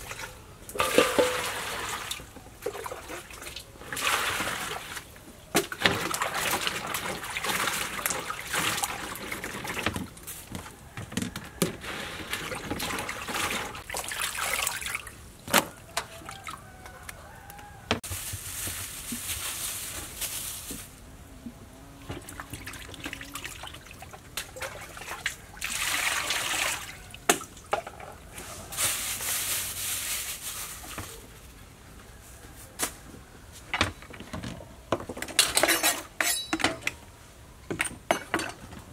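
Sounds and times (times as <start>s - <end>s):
water sloshing in metal basin: 0.0s - 10.4s, 11.4s - 16.6s, 22.0s - 28.4s.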